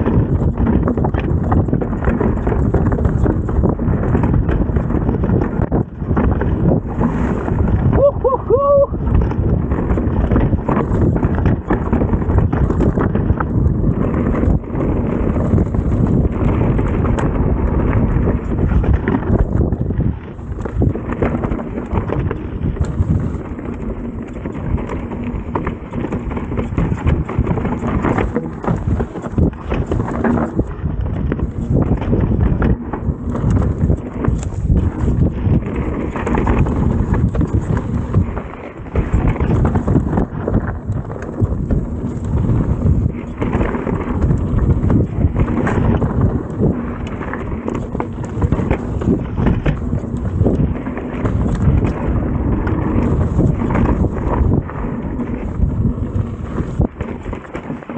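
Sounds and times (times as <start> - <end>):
bike rattling and knocking: 0.0 - 57.9
wind buffeting microphone: 0.0 - 57.9.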